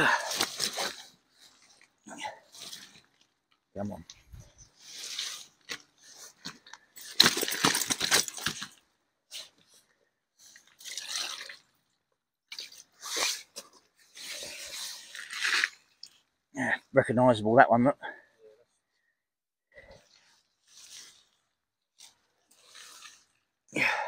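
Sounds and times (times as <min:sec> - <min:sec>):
rustling crunching handling noise: 0:00.1 - 0:09.8.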